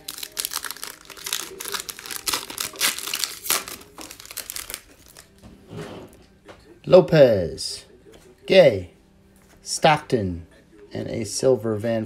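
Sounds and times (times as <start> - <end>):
foil wrapper crinkling: 0.0 - 5.4.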